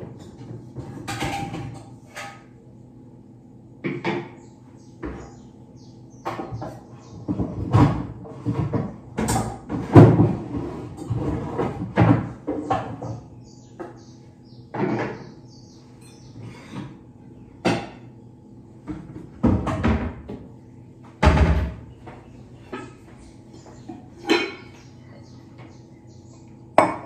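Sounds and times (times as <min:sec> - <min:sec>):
metal pots and pans clattering: 0:00.0 - 0:02.6, 0:06.3 - 0:13.2, 0:23.8 - 0:24.8.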